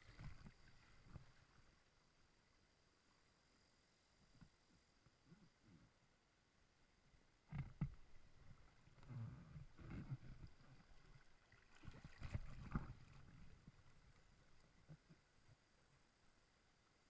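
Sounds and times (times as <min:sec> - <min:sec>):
flowing water: 0:00.0 - 0:02.5, 0:07.5 - 0:17.0
water splashing against inflatable tube: 0:07.5 - 0:15.3.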